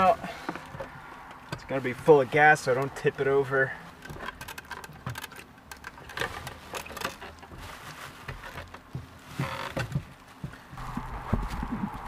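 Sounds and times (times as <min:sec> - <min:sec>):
plastic sheeting crinkling: 0:06.0 - 0:12.0.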